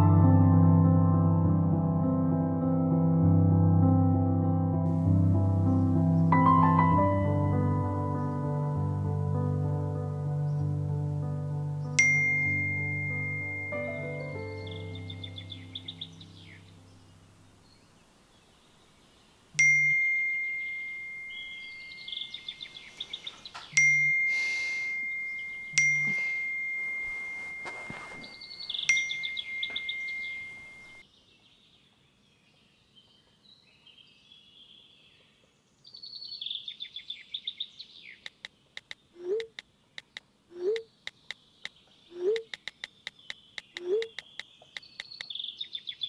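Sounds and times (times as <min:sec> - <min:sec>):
soft music: 0:00.0 - 0:17.6, 0:19.6 - 0:23.0, 0:23.7 - 0:31.0
birds chirping: 0:10.3 - 0:26.7, 0:27.8 - 0:46.0
phone notification dings: 0:12.0 - 0:14.0, 0:19.6 - 0:22.1, 0:23.8 - 0:31.0.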